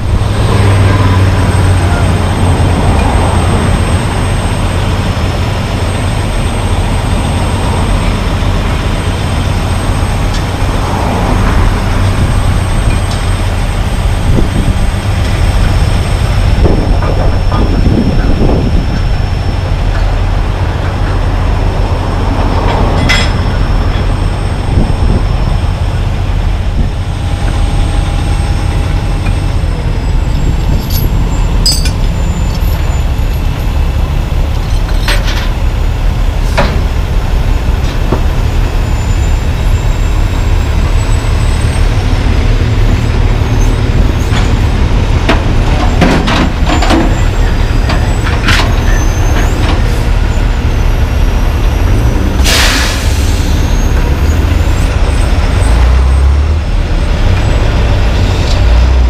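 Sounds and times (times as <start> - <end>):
diesel truck engine idling: 0.0 - 59.0
air brake hisses: 52.4 - 53.8.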